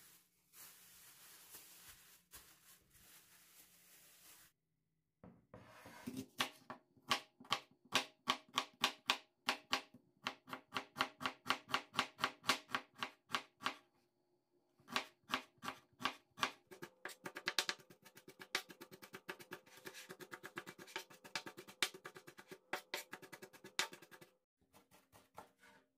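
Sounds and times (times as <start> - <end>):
knife chopping on cutting board: 14.9 - 25.8.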